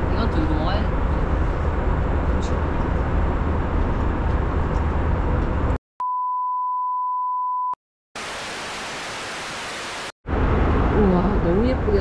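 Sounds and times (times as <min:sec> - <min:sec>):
aircraft cabin rumble: 0:00.0 - 0:05.8
tv static hiss: 0:08.2 - 0:10.1.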